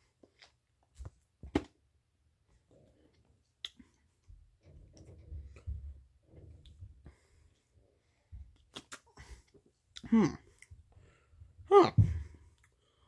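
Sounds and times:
mouth clicks: 8.6 - 9.2.

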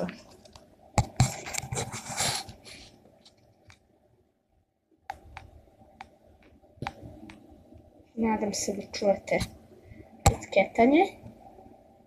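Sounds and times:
earpiece rustling on microphone: 1.0 - 3.4.

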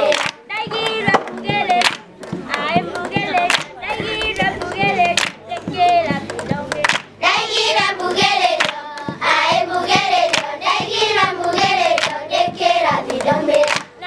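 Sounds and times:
hand-clapping: 0.0 - 14.0
children singing: 3.0 - 6.0, 7.2 - 13.8.

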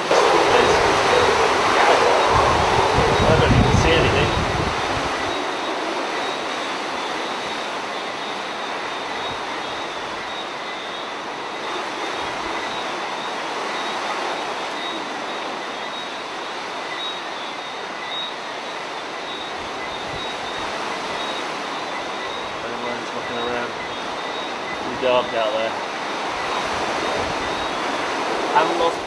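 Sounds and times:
strong wind rushing: 0.0 - 7.8, 26.0 - 29.0.

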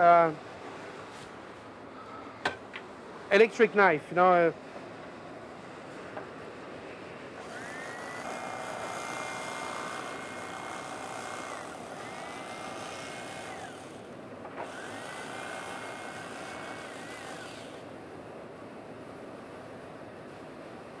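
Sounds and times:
electric knife motor whine: 7.3 - 18.2.

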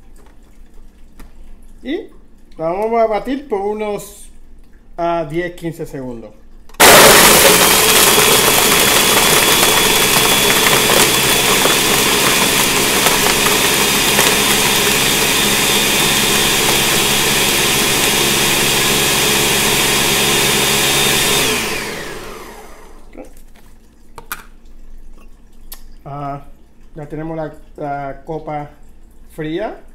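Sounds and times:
blender motor spinning down: 6.8 - 23.1
blender motor whine: 6.8 - 23.1.

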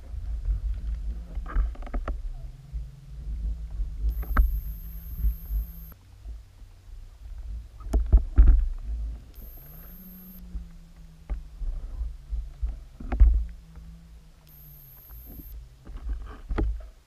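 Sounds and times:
faint low hum: 0.0 - 17.0
muffled underwater rumble: 0.0 - 17.0.

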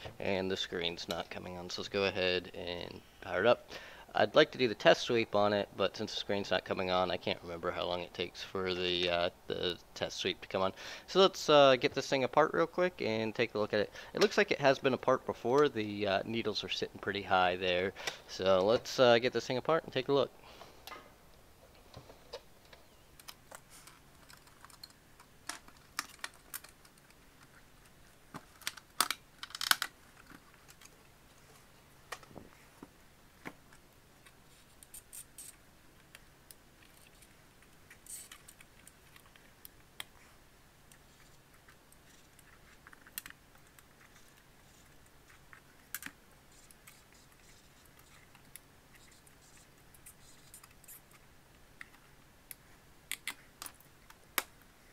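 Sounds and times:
plastic clips clicking and snapping: 28.4 - 30.9, 51.8 - 54.6.

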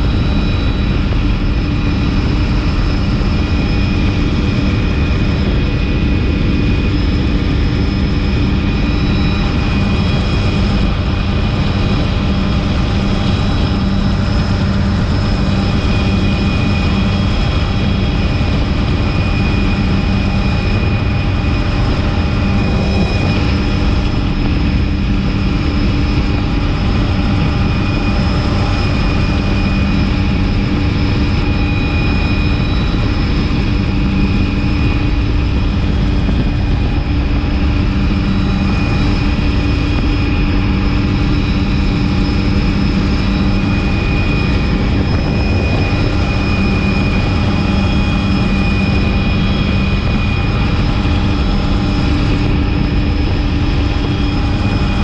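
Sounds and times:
helicopter engine and rotors: 0.0 - 55.0
high-pitched whines: 0.0 - 55.0.

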